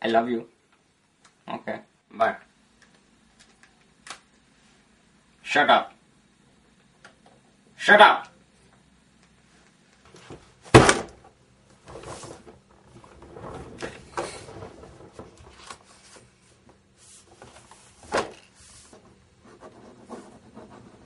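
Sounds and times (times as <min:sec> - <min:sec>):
book thumping on desk: 0:10.7 - 0:11.2
pages rustling: 0:13.3 - 0:19.0.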